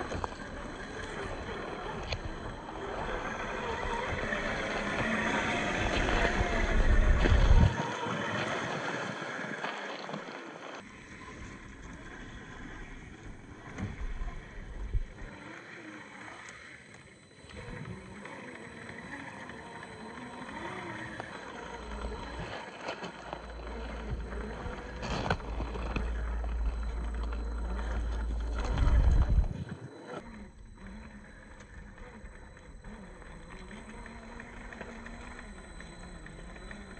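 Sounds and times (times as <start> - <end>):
toy car electric motor whining: 0.0 - 36.9
low rumble: 23.2 - 36.9.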